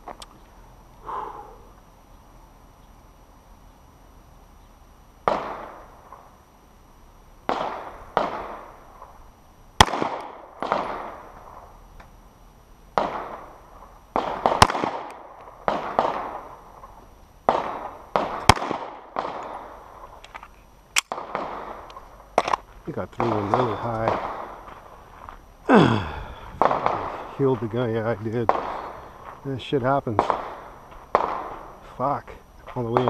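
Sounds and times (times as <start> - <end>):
duller gunshots with rolling echo: 5.2 - 6.3, 7.5 - 9.1, 9.8 - 11.7, 13.0 - 20.2, 21.0 - 22.6, 23.2 - 24.7, 26.6 - 31.8, 32.8 - 33.0
sharp pistol cracks: 9.8 - 11.7, 13.0 - 13.5, 14.2 - 16.5, 17.5 - 22.6, 30.2 - 31.7.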